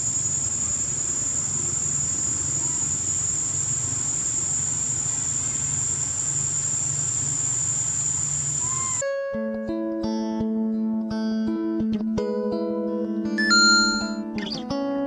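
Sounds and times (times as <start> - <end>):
high-pitched insect drone: 0.0 - 9.0
plucked guitar music: 9.0 - 15.0.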